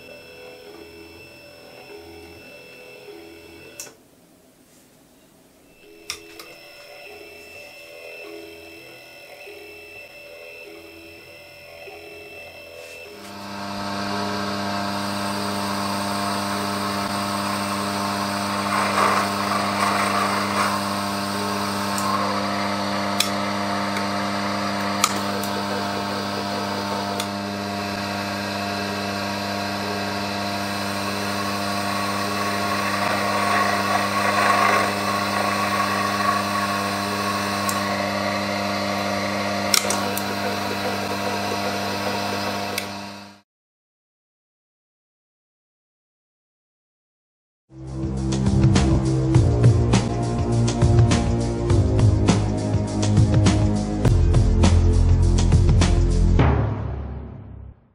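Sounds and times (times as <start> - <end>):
lathe motor hum and whine: 0.0 - 4.0, 5.8 - 43.4
scratchy cutting sound: 16.2 - 43.3.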